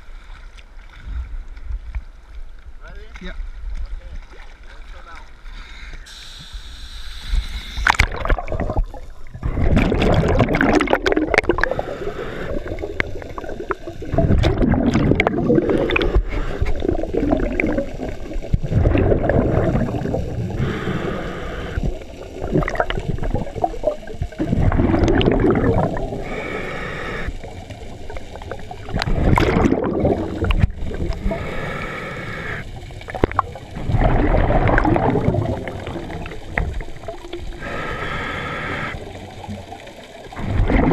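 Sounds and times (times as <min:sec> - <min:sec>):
regulator hiss on inhale: 0:05.5 - 0:07.9, 0:11.6 - 0:14.1, 0:15.6 - 0:17.0, 0:19.9 - 0:22.4, 0:26.0 - 0:27.8, 0:31.0 - 0:32.9, 0:37.5 - 0:39.2
regulator bubbles underwater: 0:07.3 - 0:40.9
water splash: 0:07.8 - 0:11.8, 0:12.5 - 0:20.7, 0:21.8 - 0:26.3, 0:27.5 - 0:31.3, 0:33.0 - 0:37.5, 0:40.3 - 0:40.9.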